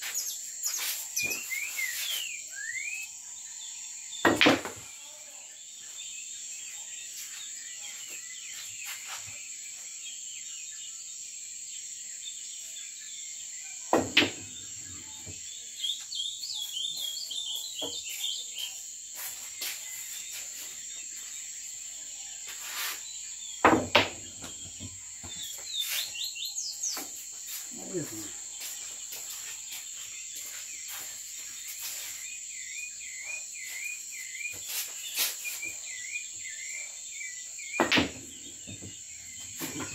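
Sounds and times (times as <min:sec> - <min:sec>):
bird chirps: 0:00.0 - 0:05.2, 0:12.1 - 0:39.9
night insects chirring: 0:00.0 - 0:39.9
pool balls clacking: 0:04.3 - 0:04.8, 0:14.0 - 0:14.5, 0:23.7 - 0:24.5, 0:37.8 - 0:38.9.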